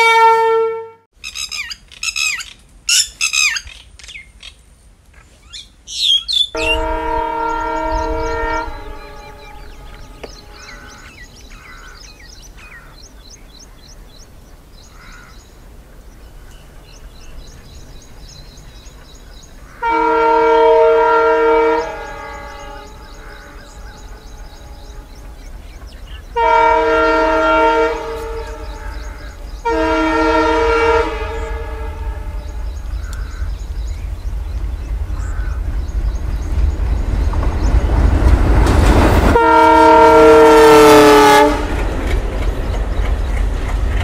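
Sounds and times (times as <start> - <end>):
locomotive horn blast: 0.0 - 1.1, 6.6 - 11.9, 19.8 - 25.4, 26.3 - 33.5, 39.2 - 42.1
birds chirping: 1.2 - 39.6, 40.9 - 44.0
low rumble: 6.6 - 11.6.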